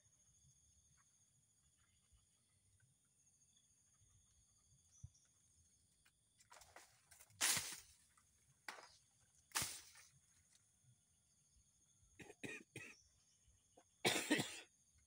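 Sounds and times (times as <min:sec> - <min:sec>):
person coughing: 0:12.2 - 0:13.0, 0:14.0 - 0:14.7.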